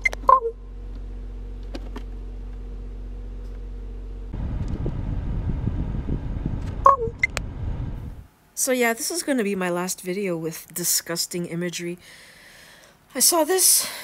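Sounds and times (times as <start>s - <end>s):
truck engine hum: 0.0s - 8.3s
rough rumble: 0.9s - 8.3s.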